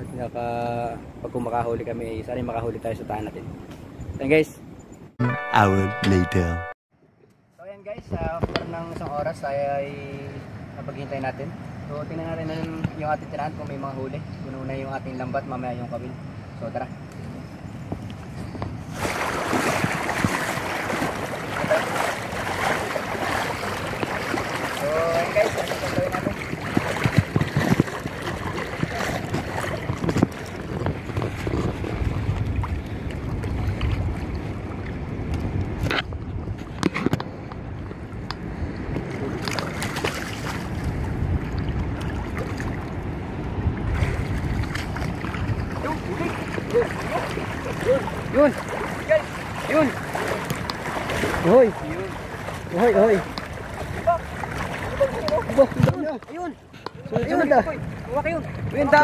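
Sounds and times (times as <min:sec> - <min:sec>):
wind rumble on microphone: 0:16.1 - 0:59.0
wading through shallow water: 0:17.4 - 0:35.8, 0:36.4 - 0:59.0.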